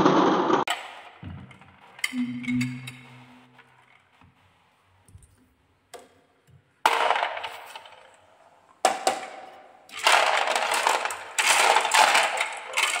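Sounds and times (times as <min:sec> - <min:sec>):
balls rattling in toy truck: 0:06.8 - 0:08.2, 0:08.8 - 0:13.0
plastic balls clattering: 0:06.8 - 0:13.0.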